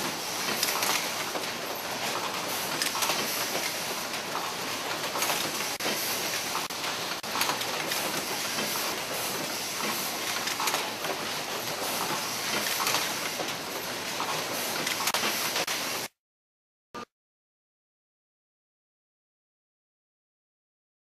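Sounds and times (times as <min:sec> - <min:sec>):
machinery clatter and hiss: 0:00.0 - 0:16.1.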